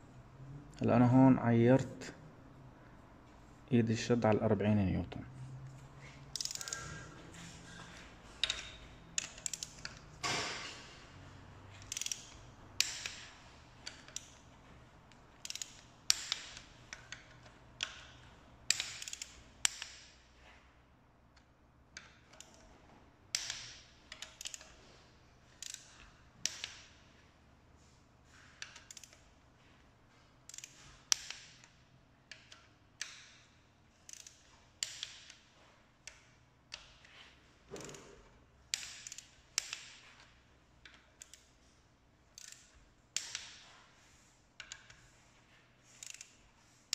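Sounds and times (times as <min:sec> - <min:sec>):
torque wrench clicking: 0:06.3 - 0:11.0, 0:11.7 - 0:14.5, 0:15.1 - 0:20.2, 0:22.0 - 0:22.7, 0:23.3 - 0:24.8, 0:25.5 - 0:27.2, 0:28.4 - 0:29.3, 0:30.5 - 0:35.4, 0:38.7 - 0:41.5, 0:42.3 - 0:43.7, 0:45.9 - 0:46.9.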